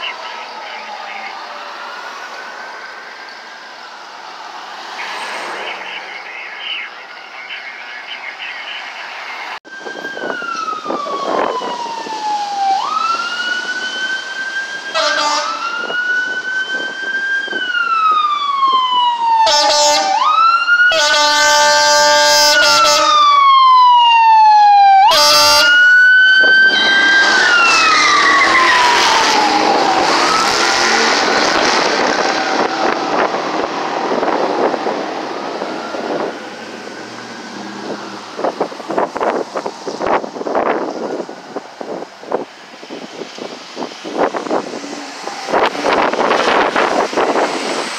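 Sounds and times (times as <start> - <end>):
fire engine siren wailing: 0.0 - 47.9
air horn blasts: 14.9 - 15.7, 19.4 - 20.2, 20.9 - 23.2, 25.1 - 25.8
truck driving by: 26.4 - 41.6.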